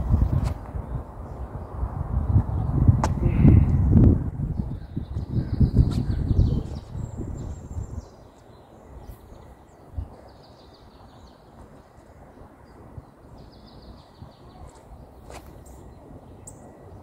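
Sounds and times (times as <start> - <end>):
wind rumbling on microphone: 0.0 - 17.0
birds chirping: 4.4 - 17.0.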